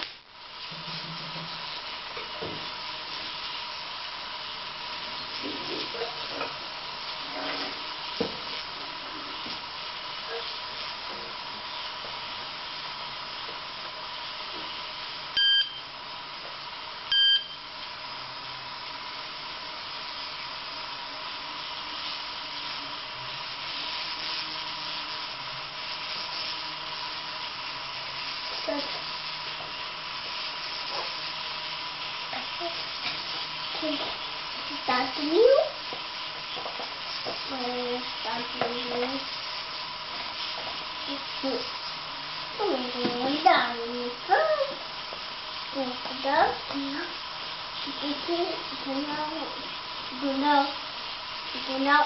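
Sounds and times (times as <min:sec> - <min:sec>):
toy train motors whirring: 0:18.8 - 0:52.0.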